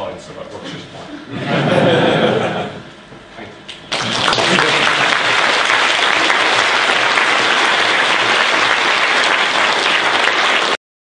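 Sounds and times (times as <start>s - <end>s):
audience applauding: 3.9s - 10.8s.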